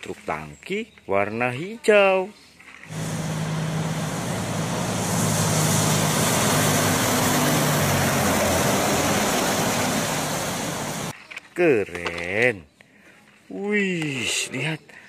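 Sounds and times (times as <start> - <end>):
diesel truck engine: 2.9 - 11.1
tyres hissing on wet road: 2.9 - 11.1.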